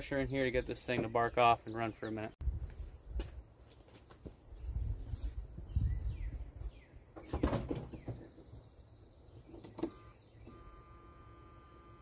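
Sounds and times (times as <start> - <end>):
footsteps: 2.5 - 5.5
in-cab warning tone: 9.8 - 12.0.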